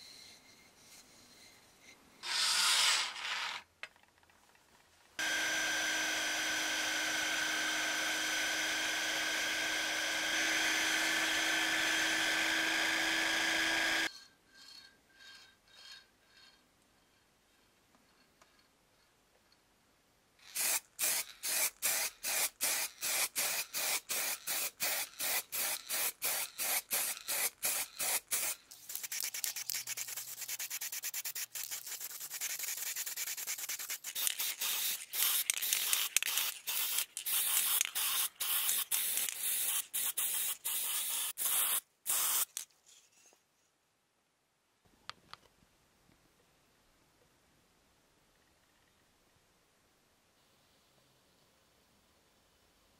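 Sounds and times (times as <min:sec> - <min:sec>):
spray paint hissing: 0:20.4 - 0:42.6
spray can rattling: 0:20.4 - 0:42.7.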